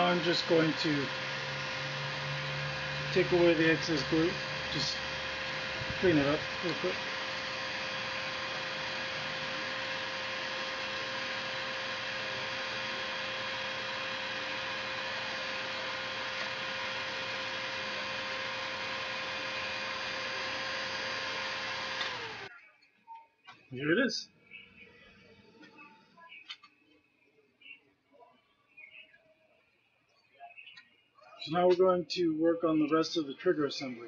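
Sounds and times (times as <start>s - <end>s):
electric motor whirring hum: 0.0s - 22.5s.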